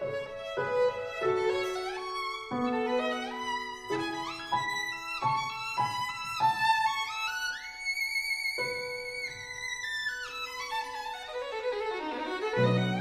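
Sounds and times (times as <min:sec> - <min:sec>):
violin playing slow held notes: 0:00.0 - 0:13.0.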